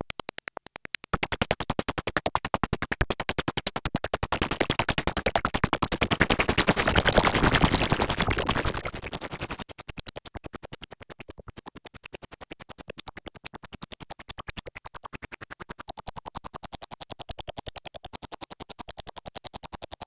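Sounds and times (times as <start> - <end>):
rapid repeated synthesizer notes: 6.2 - 9.6.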